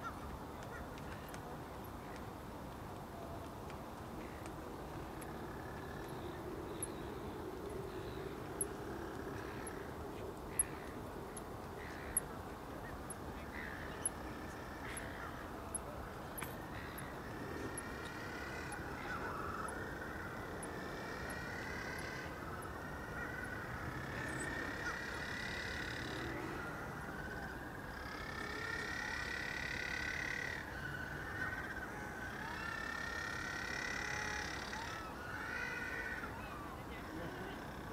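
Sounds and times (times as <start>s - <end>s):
faint high ticks: 0.6s - 13.2s.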